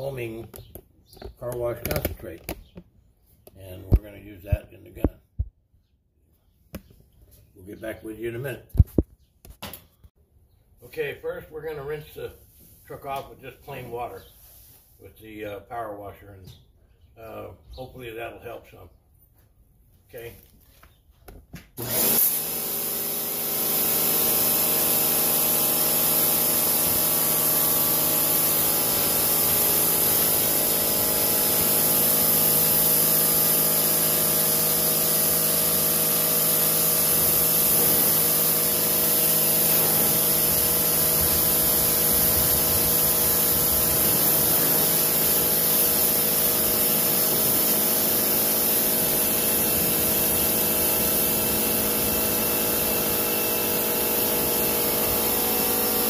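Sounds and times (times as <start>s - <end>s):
pressure washer pump humming: 21.8s - 56.0s.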